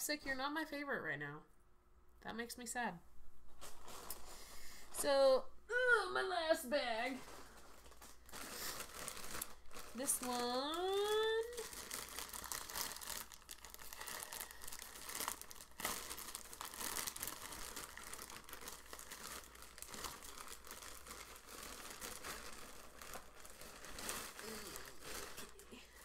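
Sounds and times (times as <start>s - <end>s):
bag crackles: 3.6s - 4.5s, 7.0s - 26.0s
shopping bag crinkling: 3.6s - 4.5s, 6.9s - 26.0s.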